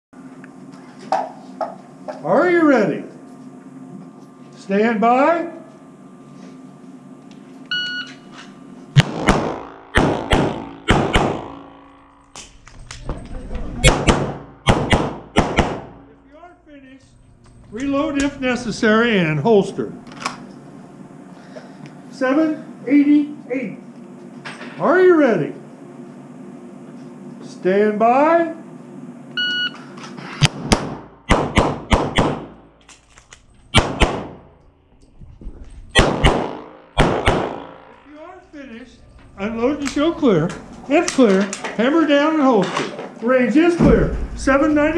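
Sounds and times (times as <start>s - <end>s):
pistol shots echoing: 9.0s - 11.8s, 13.8s - 16.1s, 30.5s - 32.6s, 33.7s - 34.5s, 36.0s - 38.0s.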